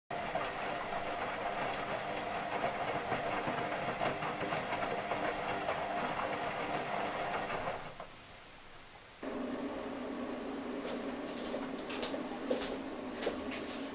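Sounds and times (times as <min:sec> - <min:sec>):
washing machine running: 0:00.1 - 0:08.1, 0:09.2 - 0:13.9.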